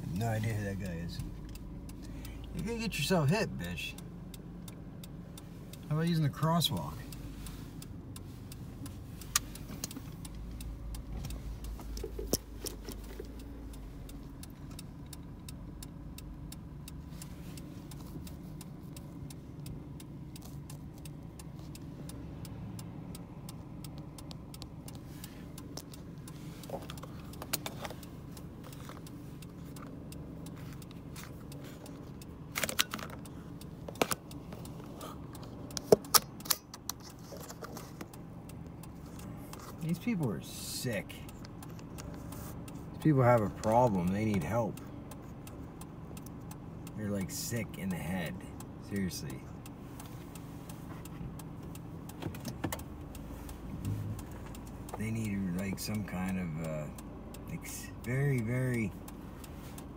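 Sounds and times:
car engine hum from inside: 0.0s - 59.9s
light clicks and rattles: 0.2s - 59.9s.

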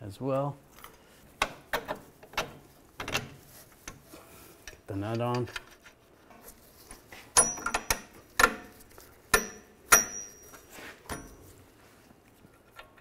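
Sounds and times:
sharp metallic clinks: 7.4s - 8.0s, 9.4s - 11.4s.

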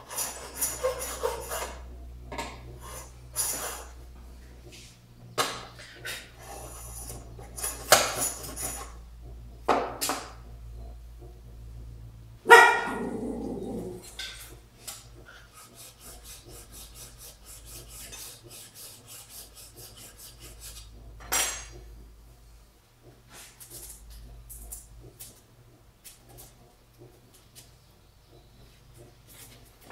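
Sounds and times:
hand plane strokes: 0.0s - 1.9s, 2.8s - 4.0s, 15.2s - 21.0s.

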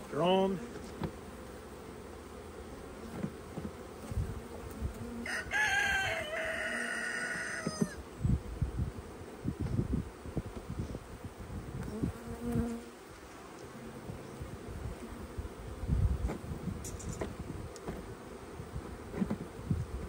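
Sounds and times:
honeybees humming: 0.0s - 20.0s
rooster crowing: 5.2s - 8.0s.

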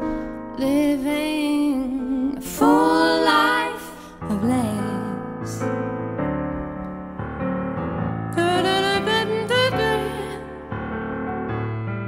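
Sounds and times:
soft piano song: 0.0s - 12.0s
person singing: 0.6s - 5.6s.

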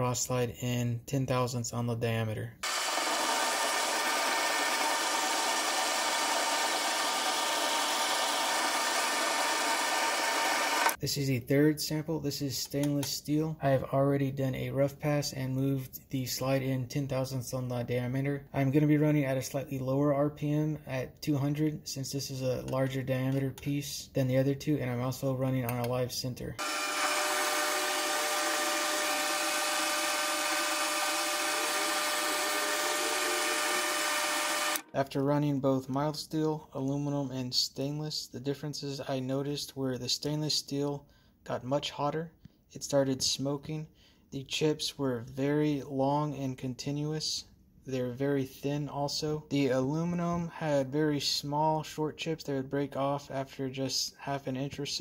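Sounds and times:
metal lathe whirring and hissing: 2.6s - 11.0s, 26.6s - 34.8s.

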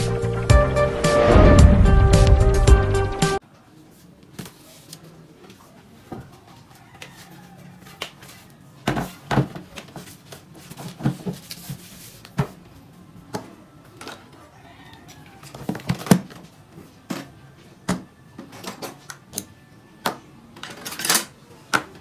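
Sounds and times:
intro music: 0.0s - 3.4s.

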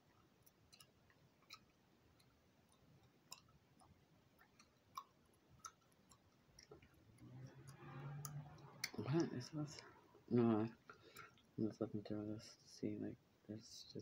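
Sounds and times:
gum chewing mouth clicks: 0.1s - 9.4s.

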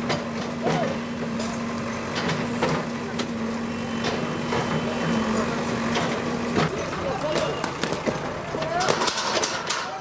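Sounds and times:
diesel engine humming: 0.0s - 10.0s
sharp knocks and clatters: 5.9s - 9.9s.

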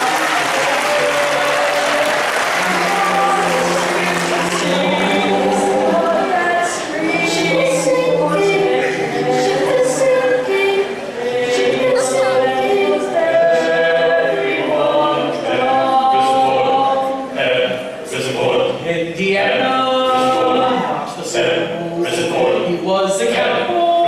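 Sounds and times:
men singing a cappella in harmony: 0.0s - 24.0s.

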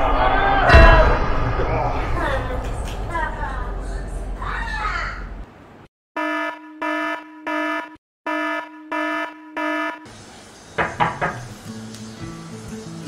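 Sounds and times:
electronic alarm beeping: 6.2s - 10.1s
quick knocks: 10.8s - 11.5s.

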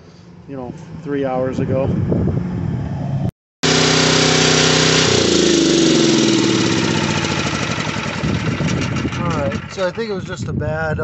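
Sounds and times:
generator engine running: 3.6s - 10.5s.

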